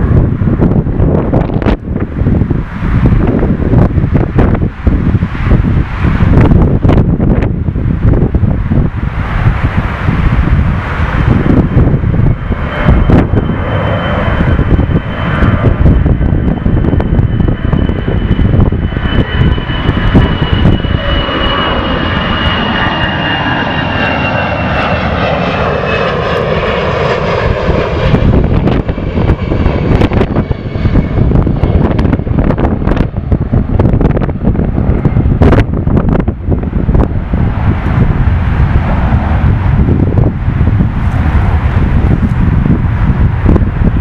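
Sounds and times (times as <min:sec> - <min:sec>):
jet engines roaring: 0:00.0 - 0:44.0
wind buffeting microphone: 0:00.0 - 0:44.0.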